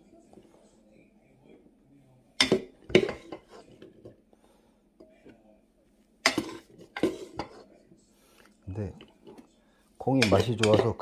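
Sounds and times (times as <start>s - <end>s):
wooden spoon scraping pot: 2.4s - 4.2s, 6.2s - 7.7s, 10.0s - 11.0s.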